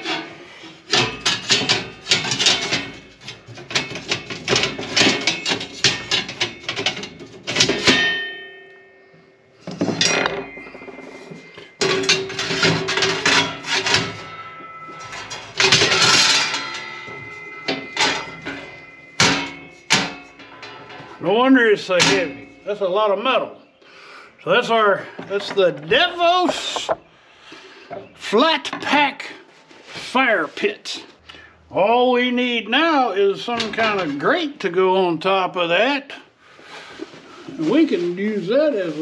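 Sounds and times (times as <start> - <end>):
metal panels clanking together: 0.0 - 8.4, 9.7 - 21.2, 21.9 - 22.6.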